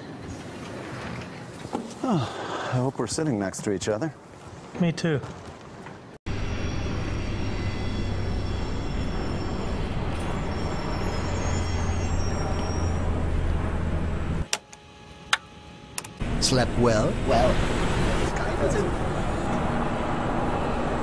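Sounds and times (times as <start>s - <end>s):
engine rumble with low hum: 6.3s - 14.5s
sharp clicks: 14.5s - 16.2s.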